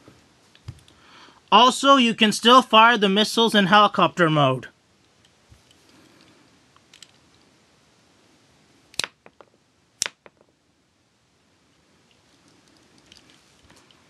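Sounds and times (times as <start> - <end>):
toy launcher plastic snaps: 8.9 - 9.2
hands rustling plastic toy: 12.1 - 14.0.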